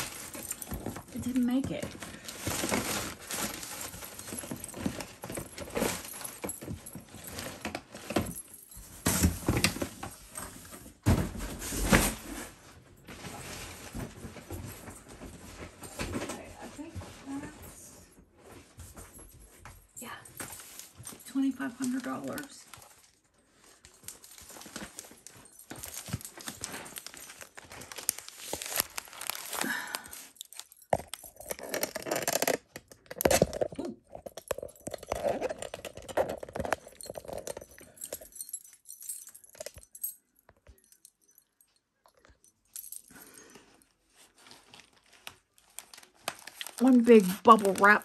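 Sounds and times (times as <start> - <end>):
plastic and bubble wrap crinkling: 0.0 - 19.0, 20.0 - 48.0
small clicking and jangling: 18.9 - 43.9.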